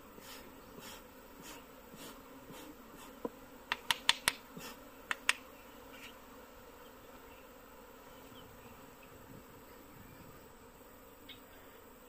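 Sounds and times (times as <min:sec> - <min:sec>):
bees buzzing faintly: 0:00.0 - 0:12.0
sharp clicks: 0:03.7 - 0:04.4.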